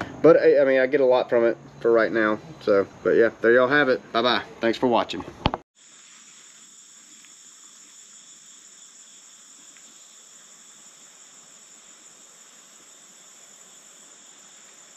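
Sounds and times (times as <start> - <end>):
insects trilling: 5.8 - 14.9.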